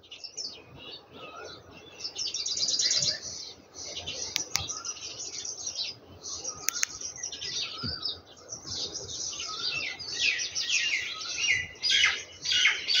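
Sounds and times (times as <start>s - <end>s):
small birds chirping: 0.0s - 13.0s
sharp clicks: 4.3s - 4.7s, 6.6s - 7.0s.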